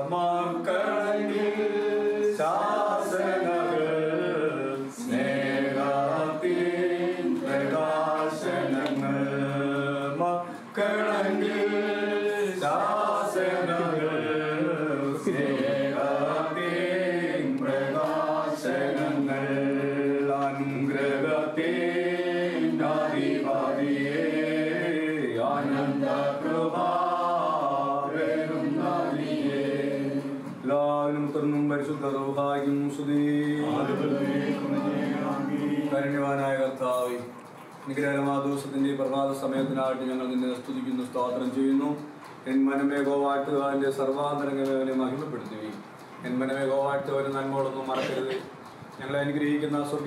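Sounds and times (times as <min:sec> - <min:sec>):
voices chanting a hymn: 0:00.0 - 0:36.8.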